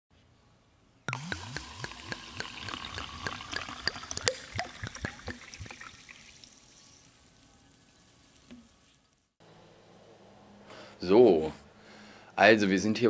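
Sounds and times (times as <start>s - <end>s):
water dripping and trickling: 1.1s - 9.0s
soft hiss: 4.2s - 9.4s.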